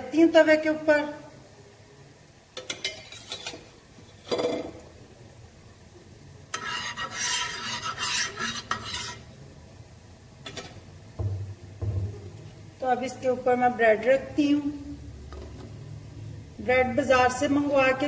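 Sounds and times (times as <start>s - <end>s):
spatula scraping metal griddle: 2.8s - 4.6s, 6.5s - 9.3s.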